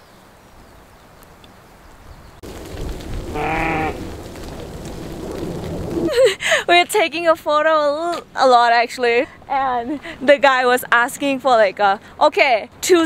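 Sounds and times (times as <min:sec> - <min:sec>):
sheep bleating: 0:03.3 - 0:04.0.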